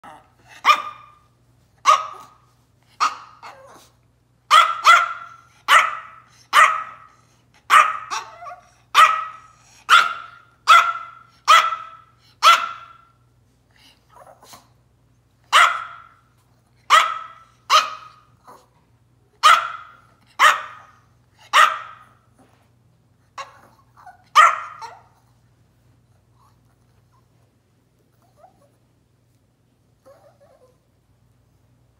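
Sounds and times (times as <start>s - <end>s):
small dog barking sharply: 0.6s - 1.2s, 1.8s - 2.4s, 4.5s - 7.1s, 7.7s - 13.1s, 15.5s - 16.2s, 16.9s - 18.2s, 19.4s - 20.9s, 21.5s - 22.1s, 24.3s - 25.1s.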